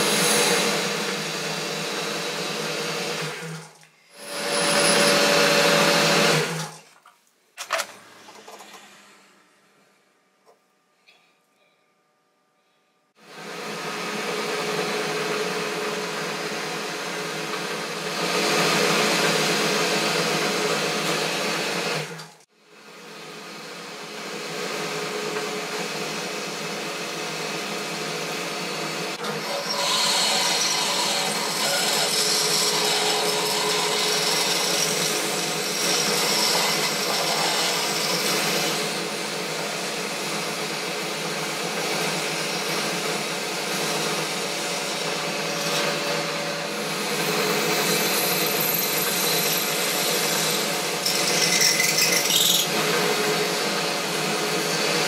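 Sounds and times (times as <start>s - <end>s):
lathe running with machine hum: 0.0s - 6.7s, 13.2s - 22.3s, 22.9s - 55.0s
drill bit drilling into metal bar: 29.2s - 39.1s, 46.9s - 55.0s.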